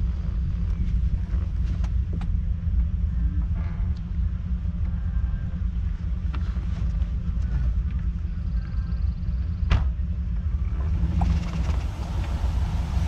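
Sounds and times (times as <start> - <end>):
car rolling on grass rumble: 0.0 - 13.0.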